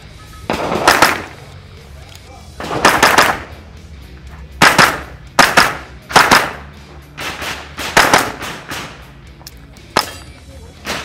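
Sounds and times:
rifle shots: 0.5s - 1.5s, 2.6s - 3.5s, 4.6s - 9.1s.

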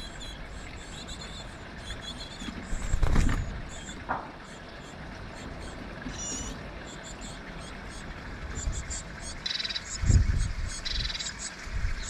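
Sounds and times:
small birds peeping: 0.0s - 12.0s
bird scrabbling and flapping: 2.4s - 3.6s.

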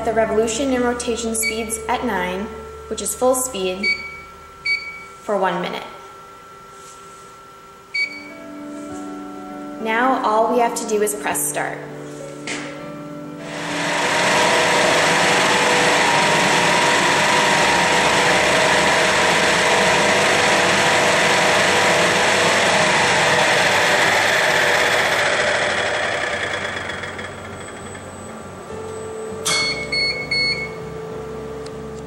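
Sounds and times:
steady mixer tones: 13.0s - 31.1s
mixer whirring hum: 13.3s - 32.0s.

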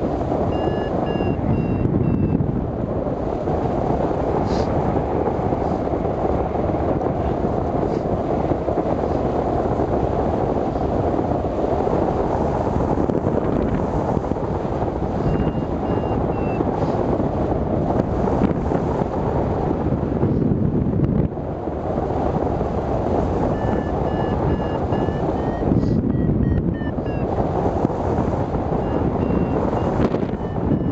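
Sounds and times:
wind rushing over microphone: 0.0s - 30.9s
short faint high beeps: 0.5s - 2.4s, 15.3s - 16.6s, 23.5s - 27.3s, 28.8s - 30.9s.

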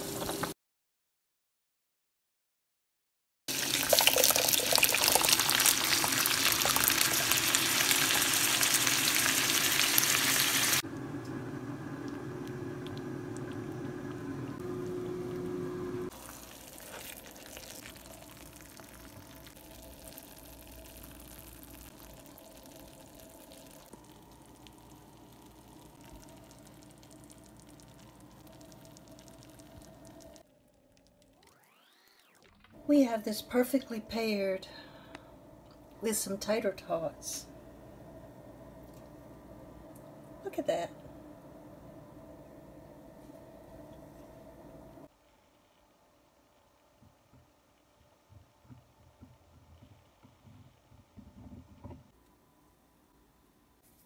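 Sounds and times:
faint kitchen background: 0.0s - 0.6s, 3.5s - 54.0s
pot of water boiling: 3.5s - 34.3s
water simmering: 3.5s - 35.9s.

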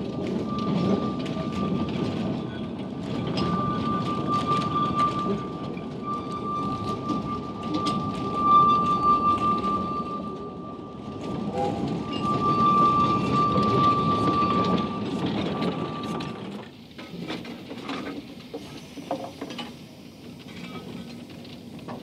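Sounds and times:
steam train approaching: 0.0s - 22.0s
train wheels rumbling on rails: 0.0s - 22.0s
high wheel squeal: 0.3s - 16.4s.

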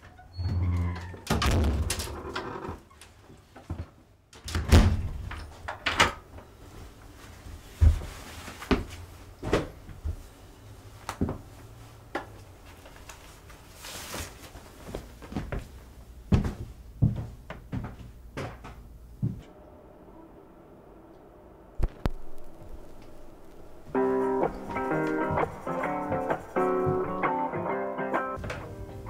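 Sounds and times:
door shutting: 0.3s - 2.9s
footsteps: 6.7s - 10.4s, 11.1s - 19.6s, 21.8s - 27.7s, 28.4s - 29.0s.

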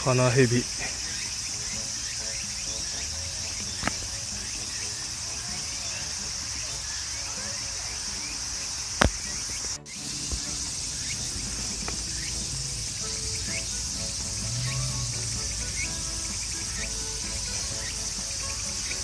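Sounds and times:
crickets and insects chorus: 0.0s - 19.0s
short rising chirps: 0.8s - 19.0s
sharp click: 3.8s - 4.0s.

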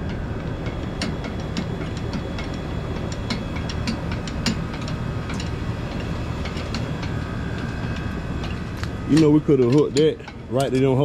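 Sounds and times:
engine hoist chain clinking: 0.0s - 11.0s
steady low rumble: 0.0s - 11.0s.

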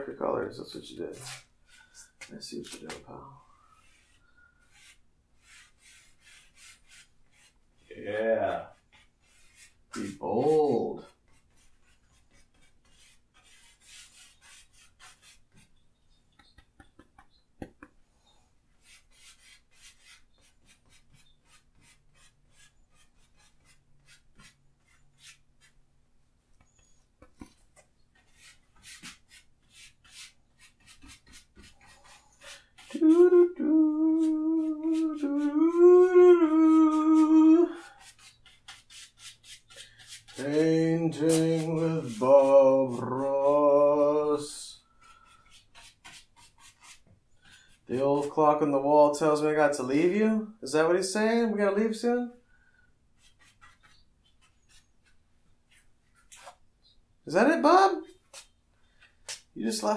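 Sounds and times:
brush scrubbing paint on canvas: 0.6s - 2.9s, 3.6s - 17.9s, 18.7s - 25.8s, 26.8s - 35.8s, 36.5s - 48.4s, 53.2s - 57.0s
man humming a long note: 32.9s - 37.8s.

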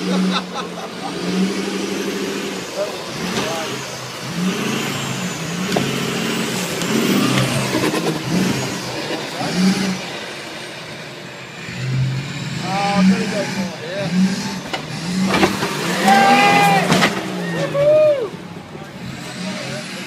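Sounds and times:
truck engine revving: 0.0s - 20.0s
truck knocks and clatter: 5.6s - 9.4s, 14.6s - 16.1s, 16.7s - 17.7s.

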